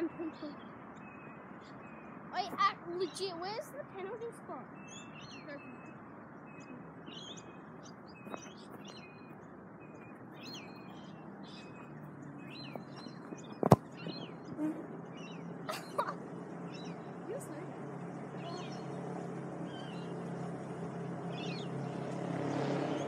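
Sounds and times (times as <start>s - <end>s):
small birds chirping: 0.0s - 23.0s
football being kicked: 12.7s - 14.2s.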